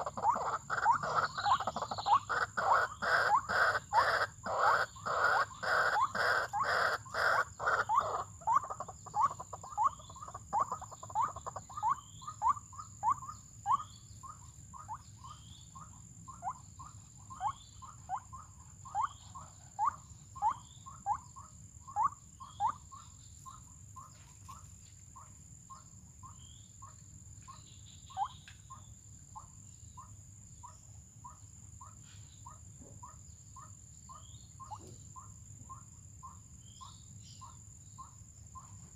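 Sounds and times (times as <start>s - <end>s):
waterhen calling: 0.0s - 16.6s
high insect whine: 0.0s - 25.0s.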